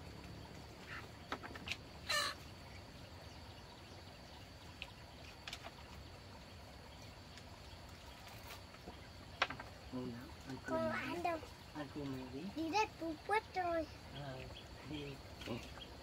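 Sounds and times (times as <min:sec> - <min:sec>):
steady low background noise: 0:00.0 - 0:16.0
chicken squawk: 0:02.0 - 0:02.4.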